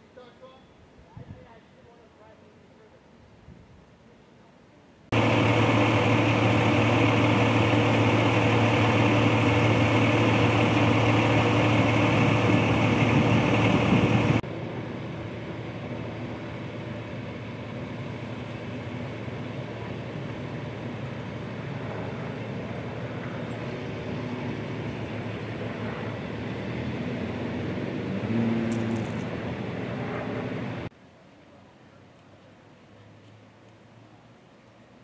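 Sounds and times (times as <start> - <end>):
vehicle engine idling: 5.1 - 30.9.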